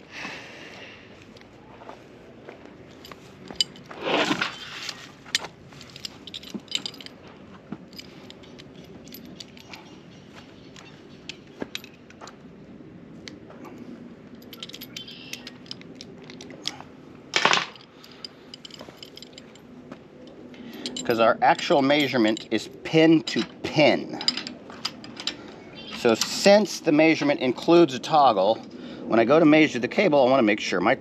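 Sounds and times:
metal fittings clinking: 0:03.5 - 0:07.2, 0:14.4 - 0:16.8, 0:20.6 - 0:27.3.

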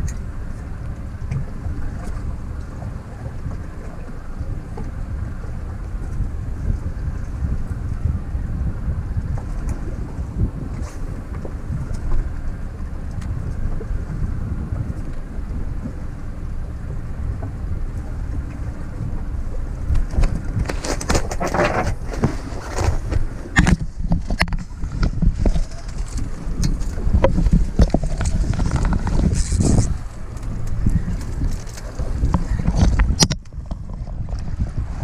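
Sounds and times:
boat engine rumble: 0:00.0 - 0:35.0
wind buffeting microphone: 0:00.0 - 0:35.0
rustling and knocks: 0:20.0 - 0:30.0.

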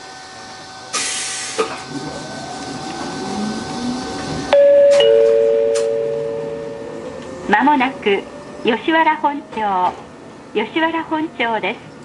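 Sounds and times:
air hiss: 0:00.9 - 0:01.8
train clunk: 0:00.9 - 0:07.5, 0:09.4 - 0:10.2
traction motor whine: 0:01.7 - 0:08.6
two-tone chime: 0:04.6 - 0:06.9.

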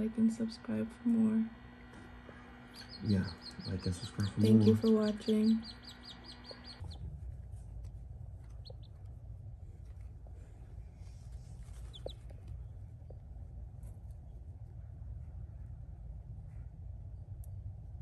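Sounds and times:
steady low hum: 0:00.0 - 0:18.0
chicks peeping: 0:02.2 - 0:07.0, 0:08.4 - 0:09.1, 0:11.0 - 0:13.2.

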